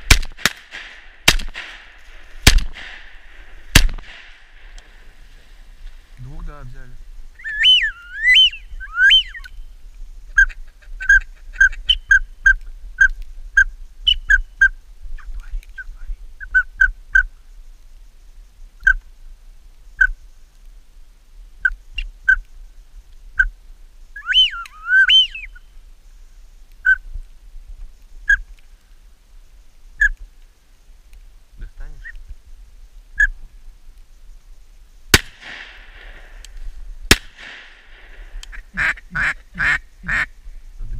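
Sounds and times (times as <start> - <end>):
rising and falling whistles: 7.4 - 9.6, 24.2 - 25.6
whistling duck calls: 7.4 - 9.6, 24.2 - 25.6.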